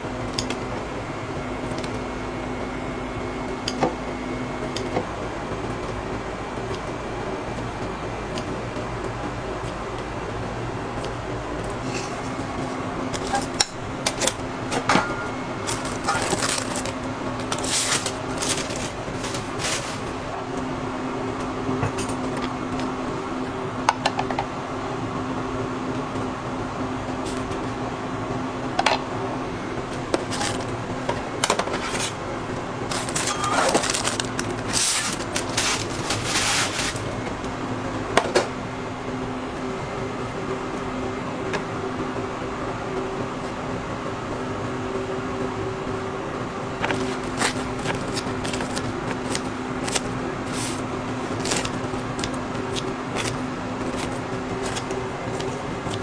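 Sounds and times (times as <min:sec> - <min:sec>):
ventilation fan hum: 0:00.0 - 0:56.0
utensils clicking and clattering: 0:13.2 - 0:20.1, 0:32.9 - 0:37.1.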